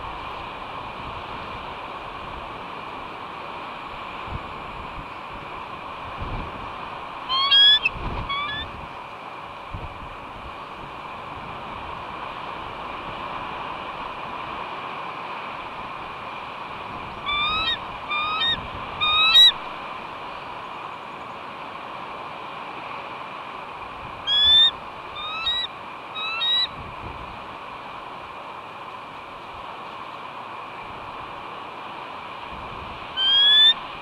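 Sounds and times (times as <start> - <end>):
wind noise: 3.8 - 9.0, 9.6 - 14.9, 15.5 - 20.6, 23.7 - 28.3, 32.2 - 34.0
eagle calling: 7.3 - 8.8, 17.2 - 19.7, 24.2 - 26.8, 33.2 - 34.0.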